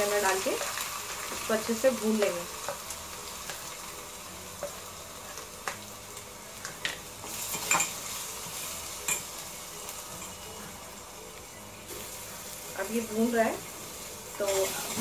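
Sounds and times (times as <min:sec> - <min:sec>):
paste sizzling in hot oil: 0:00.0 - 0:15.0
spoon clinking against metal pot: 0:07.5 - 0:08.0.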